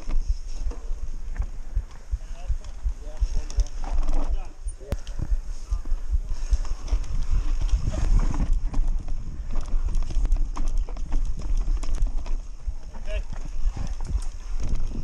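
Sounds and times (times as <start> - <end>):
bike rattling over bumps: 0.0 - 15.0
wind buffeting microphone: 0.0 - 15.0
tyres rolling on dirt: 5.7 - 15.0.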